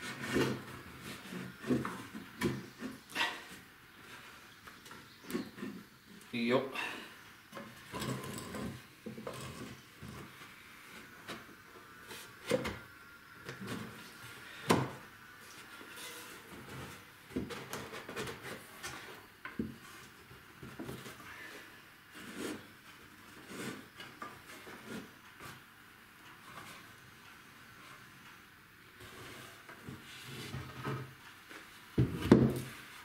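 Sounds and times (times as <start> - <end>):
wooden boards knocking and clicking: 32.0 - 32.7.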